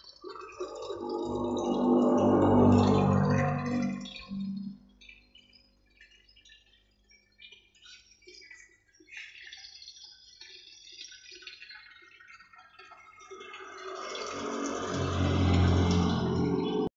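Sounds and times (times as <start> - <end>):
water trickling through pipes: 0.0 - 16.9
loud full noise: 14.2 - 16.9.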